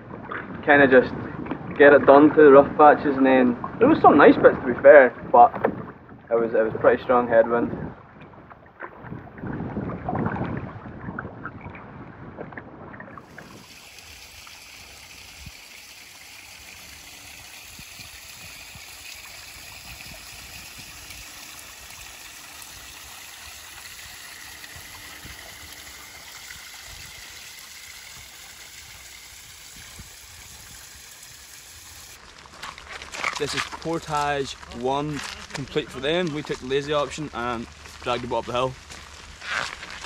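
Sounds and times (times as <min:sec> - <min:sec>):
wind rumble on microphone: 0:00.0 - 0:13.8, 0:17.6 - 0:21.3, 0:29.3 - 0:31.0
running water hiss: 0:13.2 - 0:32.2.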